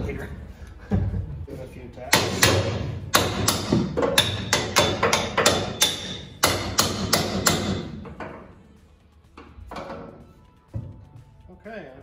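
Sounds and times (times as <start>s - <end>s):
metal-on-metal knocks: 2.1s - 8.5s.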